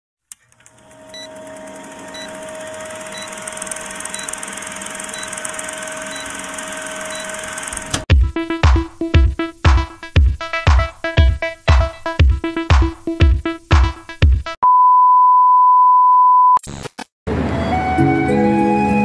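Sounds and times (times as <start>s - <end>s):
film projector whirring: 0.3s - 8.1s.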